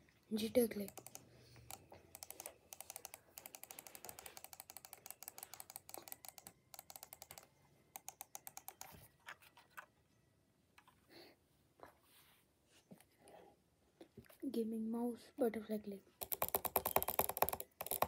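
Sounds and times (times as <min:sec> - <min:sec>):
rapid mouse button clicks: 0:00.8 - 0:09.0, 0:16.2 - 0:18.0.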